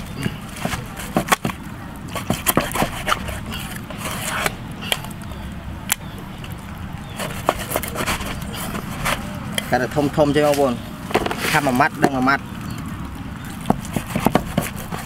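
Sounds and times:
cleaver chopping on wooden block: 0.2 - 1.6, 2.2 - 3.3, 13.6 - 15.0.

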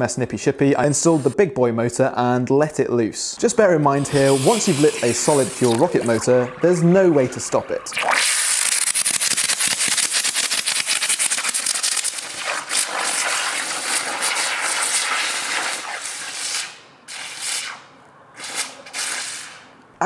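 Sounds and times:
short hissing bursts: 4.0 - 6.2, 8.0 - 19.7
rocket motor crackling hiss: 4.0 - 6.4, 7.2 - 17.8, 18.4 - 19.7.

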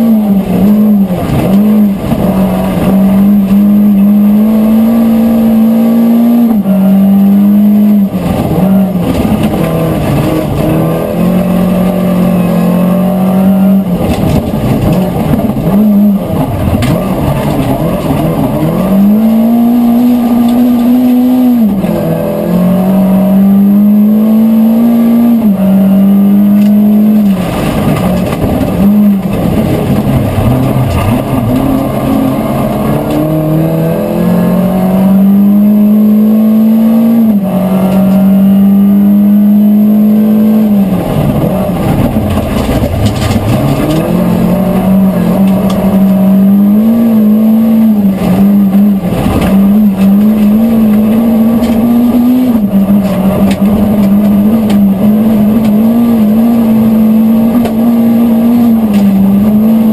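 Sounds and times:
rally car engine revving: 0.0 - 59.9
gravel knocks and rattles: 41.3 - 44.2.

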